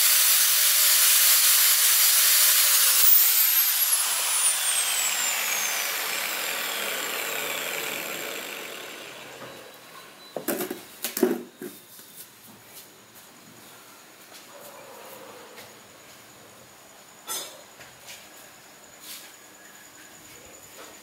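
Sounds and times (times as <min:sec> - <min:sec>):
angle grinder winding down: 0:00.0 - 0:09.9.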